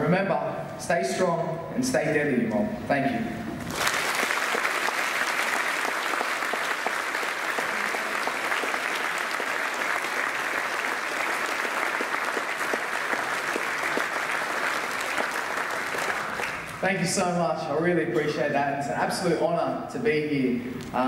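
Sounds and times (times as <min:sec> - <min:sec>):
audience applauding: 0:03.7 - 0:16.8.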